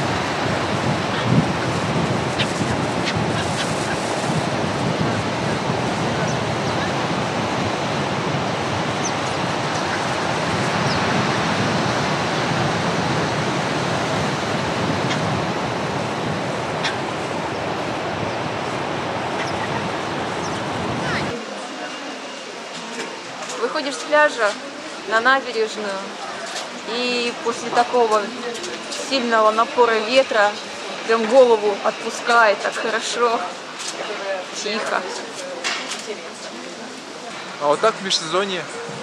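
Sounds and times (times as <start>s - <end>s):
surf breaking on beach: 0.0s - 21.4s
wind buffeting microphone: 0.0s - 21.4s, 38.6s - 39.0s
gulls calling: 0.0s - 21.6s.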